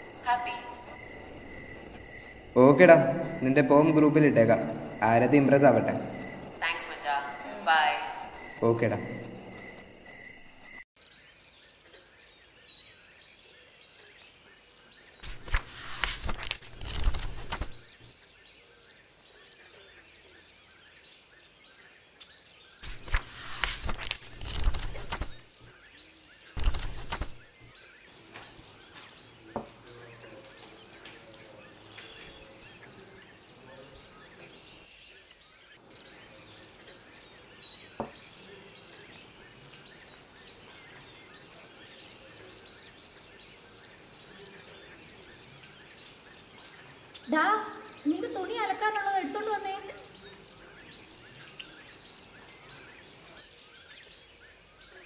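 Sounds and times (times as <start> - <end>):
small birds chirping: 0.0 - 55.0
newspaper pages rustling: 15.2 - 17.9, 22.8 - 25.5, 26.6 - 27.5.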